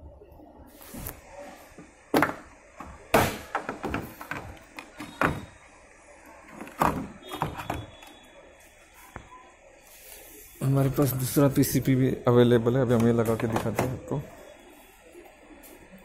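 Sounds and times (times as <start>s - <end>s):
plastic knocks: 2.1s - 5.5s, 6.6s - 7.9s.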